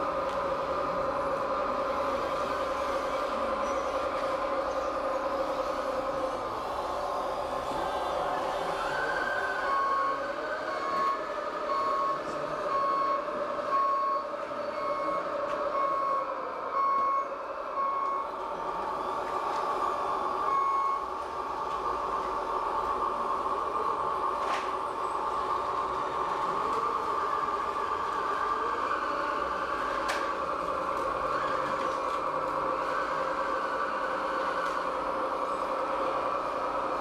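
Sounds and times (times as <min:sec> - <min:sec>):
reversing beeper: 0:07.7 - 0:18.4, 0:20.4 - 0:21.2
steady hum: 0:16.4 - 0:31.3.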